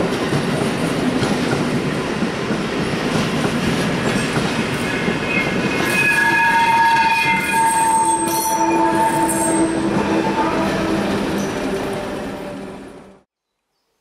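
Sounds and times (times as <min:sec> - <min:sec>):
train wheels rumbling on rail: 0:00.0 - 0:13.2
wheels squealing: 0:04.8 - 0:13.0.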